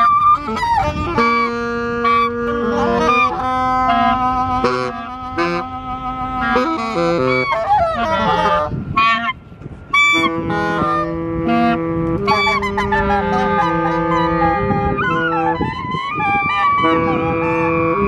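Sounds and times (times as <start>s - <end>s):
harsh honking squawks: 0.0s - 18.0s
reed instruments improvising: 0.0s - 18.0s.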